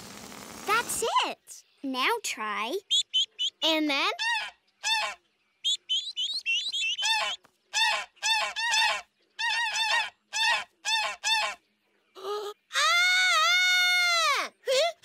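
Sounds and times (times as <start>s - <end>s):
cartoon geese honking calls: 2.9s - 11.6s.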